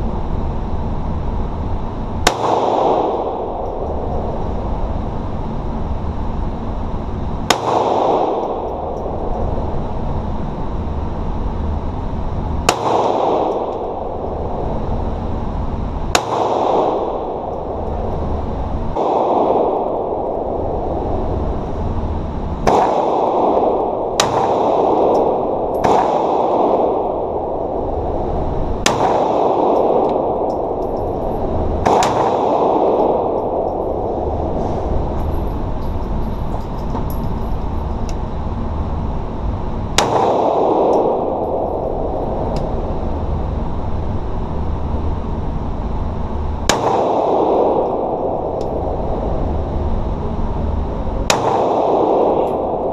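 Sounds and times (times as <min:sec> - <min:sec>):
steady background noise: 0:00.0 - 0:52.9
pistol shots with ringing echo: 0:02.2 - 0:04.5, 0:07.4 - 0:09.4, 0:12.7 - 0:14.4, 0:16.1 - 0:17.9, 0:18.9 - 0:20.6, 0:22.6 - 0:28.0, 0:28.8 - 0:34.4, 0:39.9 - 0:42.1, 0:46.7 - 0:48.8, 0:51.2 - 0:52.9.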